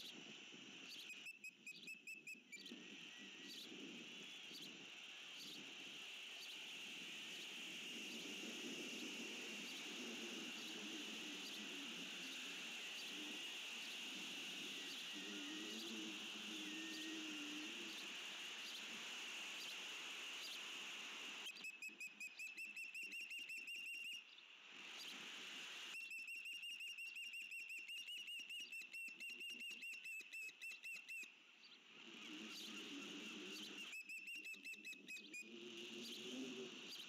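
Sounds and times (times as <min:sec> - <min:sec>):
steady high-pitched hum: 0:00.0 - 0:24.2.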